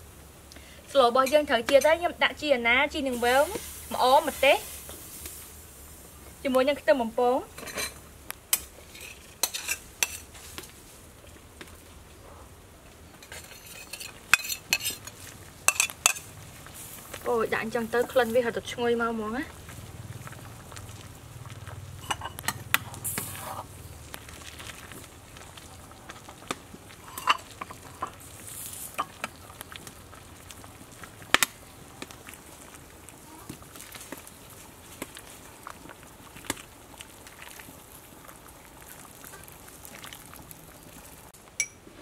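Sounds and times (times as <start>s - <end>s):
metal ladle scraping and clinking: 8.6s - 10.3s, 13.2s - 16.3s, 22.0s - 23.7s, 27.0s - 28.2s.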